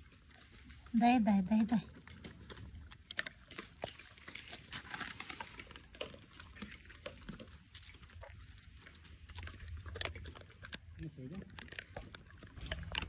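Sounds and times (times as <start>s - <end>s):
dog chewing with crunching clicks: 0.0s - 13.0s.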